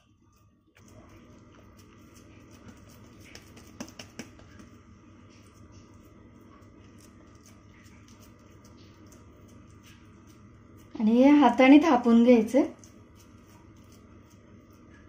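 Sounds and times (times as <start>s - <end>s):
low room hum: 0.0s - 15.0s
hand patting dough on cloth: 0.8s - 5.7s
sharp taps: 3.3s - 4.7s.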